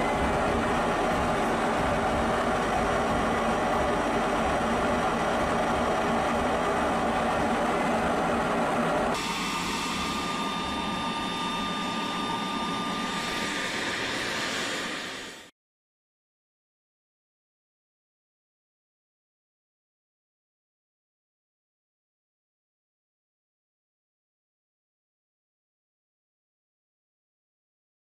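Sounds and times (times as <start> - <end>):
engine-like rushing noise: 0.0 - 15.5
propeller drone whine: 0.0 - 15.5.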